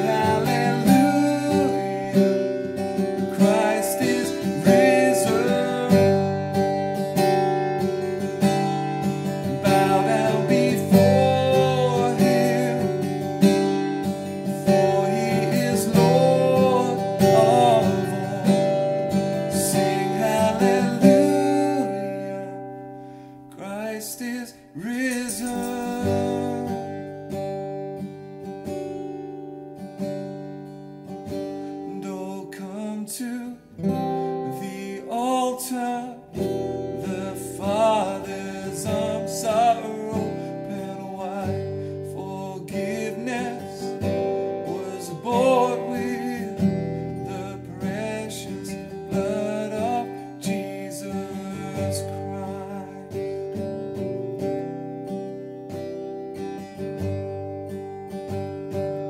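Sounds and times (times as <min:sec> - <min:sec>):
man singing: 0:00.0 - 0:07.0, 0:09.0 - 0:22.8, 0:23.5 - 0:27.0, 0:31.9 - 0:53.6
strummed acoustic guitar: 0:00.0 - 0:59.0.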